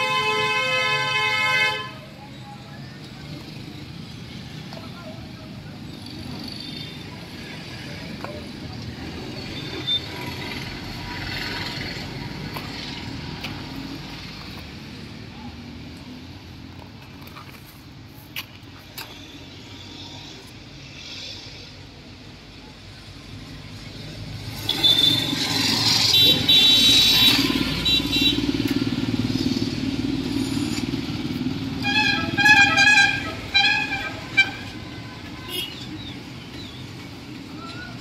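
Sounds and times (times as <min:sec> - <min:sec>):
vehicle horn toots: 0:00.0 - 0:02.0, 0:24.6 - 0:28.5, 0:31.8 - 0:35.8.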